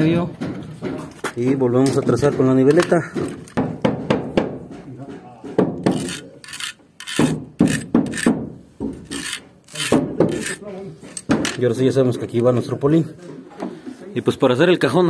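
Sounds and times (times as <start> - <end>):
pencil scratching: 5.9 - 8.3, 9.1 - 10.6.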